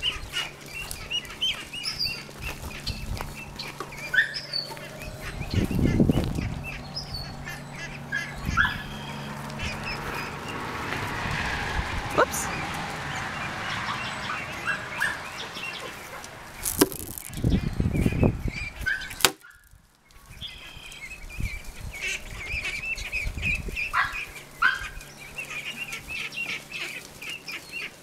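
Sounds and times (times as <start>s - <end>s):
young ducks peeping: 0.0s - 28.0s
low rumble on microphone: 2.0s - 15.4s, 16.2s - 18.9s.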